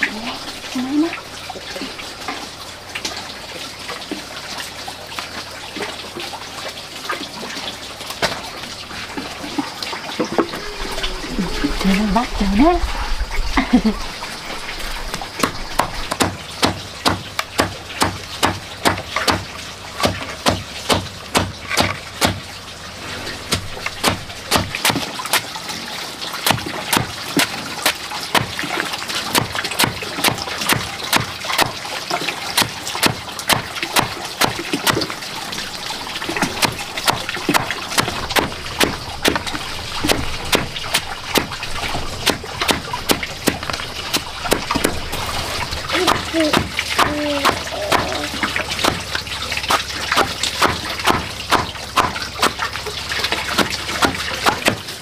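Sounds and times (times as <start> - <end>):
cleaver chopping on wooden board: 15.8 - 22.4, 23.5 - 25.1, 49.7 - 52.6.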